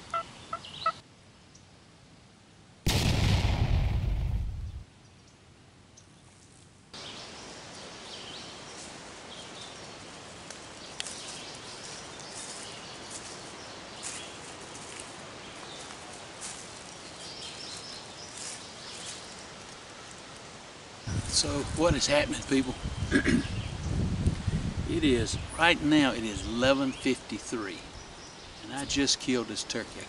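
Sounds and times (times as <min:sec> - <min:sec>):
footsteps through dry leaves: 0:09.9 - 0:20.4.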